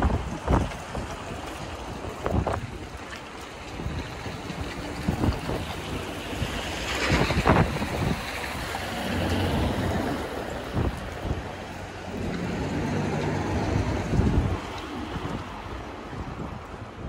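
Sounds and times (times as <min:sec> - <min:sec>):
wind buffeting microphone: 0:00.0 - 0:17.0
vehicle engine humming: 0:04.0 - 0:16.4.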